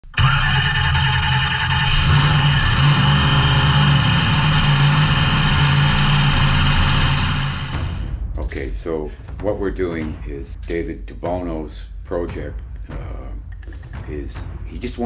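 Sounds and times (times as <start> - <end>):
engine idling: 0.0 - 8.0.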